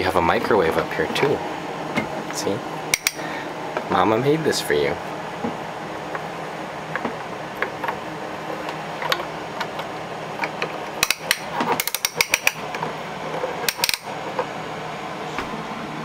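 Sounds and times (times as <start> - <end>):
wooden toy doors clicking: 9.0 - 12.6.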